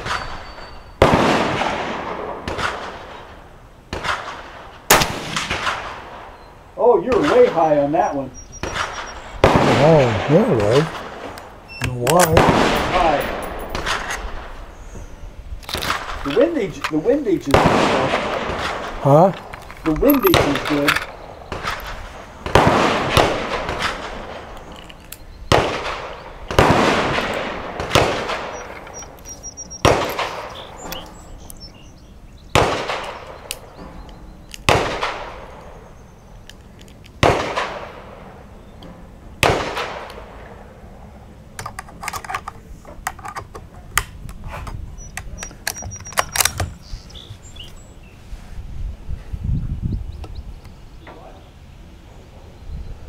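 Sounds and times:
echoing gunshots: 0.0 - 14.7, 15.8 - 24.7, 25.5 - 31.2, 32.5 - 33.9, 34.6 - 35.9, 37.2 - 38.6, 39.4 - 41.0.

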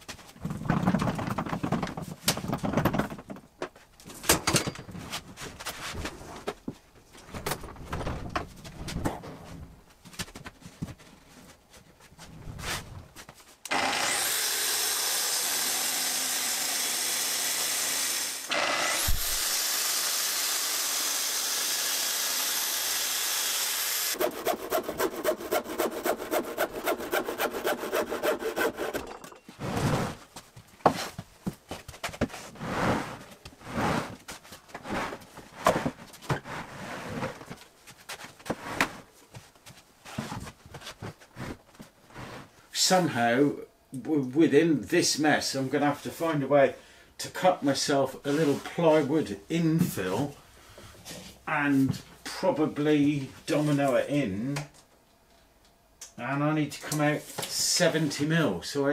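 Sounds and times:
track saw cutting plywood: 13.7 - 29.1
furniture knocking and scraping: 29.4 - 37.6.

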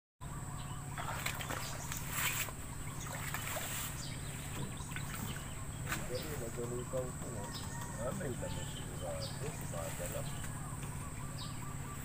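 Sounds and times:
steady low hum: 0.2 - 12.0
footsteps splashing in water: 1.0 - 6.1.

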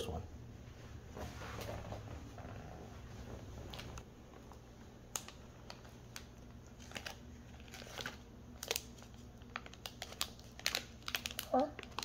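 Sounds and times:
plastic packaging crinkling: 3.7 - 12.0.

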